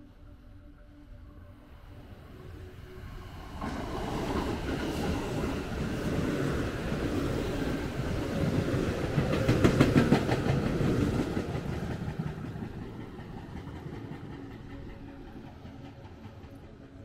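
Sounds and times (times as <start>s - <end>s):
train wheels clattering over rails: 3.6s - 17.0s.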